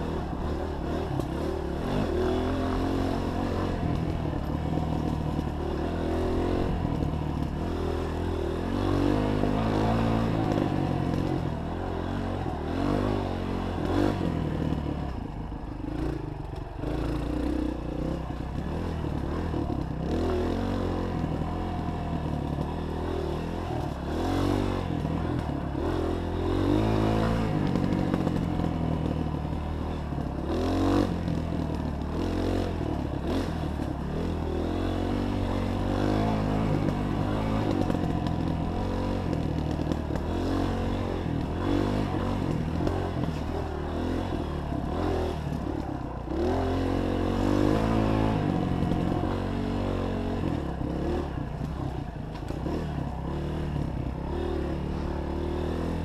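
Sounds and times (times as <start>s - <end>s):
dirt bike engine revving: 0.0s - 14.9s, 16.8s - 56.0s.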